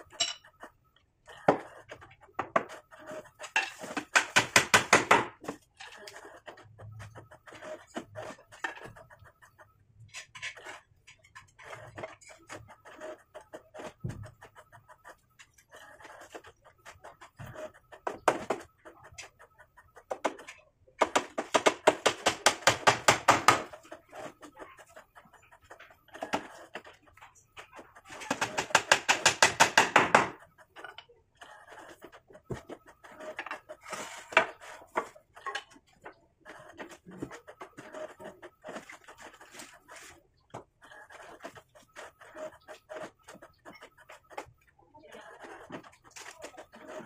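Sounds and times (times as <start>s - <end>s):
hammer driving nails into wood: 4.0s - 5.4s, 21.0s - 23.7s, 28.3s - 30.4s.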